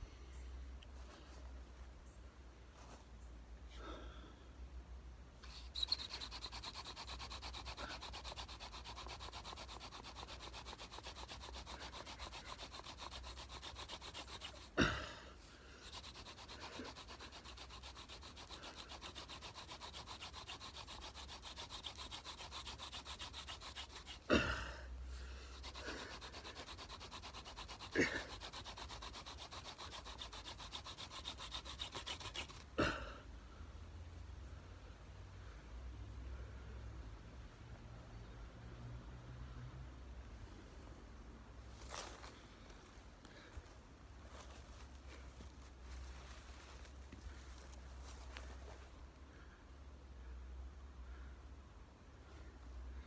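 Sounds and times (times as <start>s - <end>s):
wood grinding against wood: 5.4s - 15.1s, 15.8s - 24.6s, 25.6s - 32.6s.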